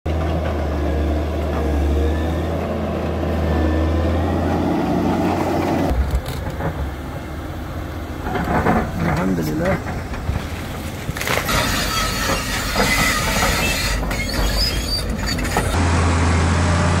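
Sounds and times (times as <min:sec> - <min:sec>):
diesel engine droning: 0:00.1 - 0:17.0.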